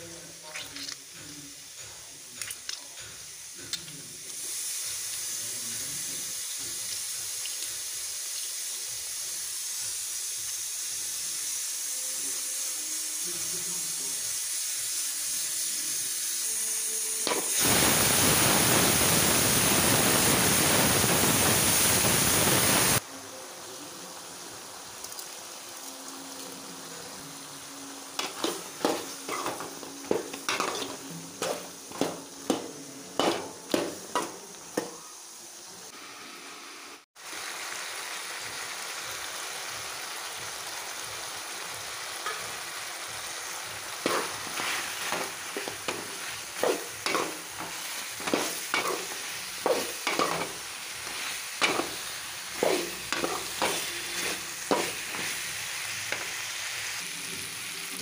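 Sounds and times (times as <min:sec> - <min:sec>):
chicken sizzling in oil: 0:00.0 - 0:58.0
spatula scraping pan: 0:28.2 - 0:34.9, 0:44.0 - 0:55.4.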